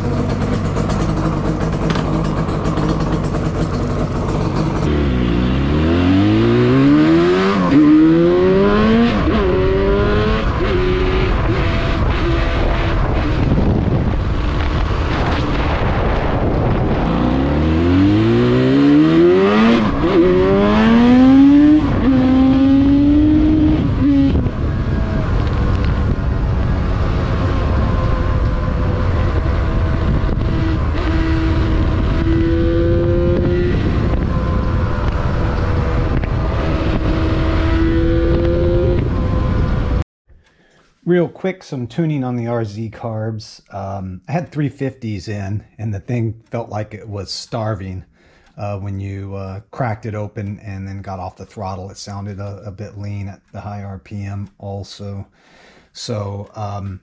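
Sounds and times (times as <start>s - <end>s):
motorcycle engine revving: 0.0s - 40.0s
wind noise on microphone: 8.2s - 18.8s, 19.4s - 40.0s.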